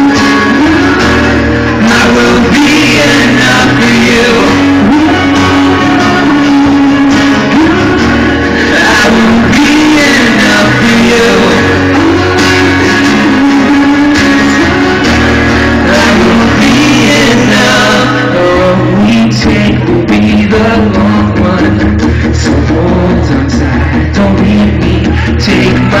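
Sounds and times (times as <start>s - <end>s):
electric guitar: 0.0s - 26.0s
person singing: 0.0s - 26.0s
rock band playing: 0.0s - 26.0s.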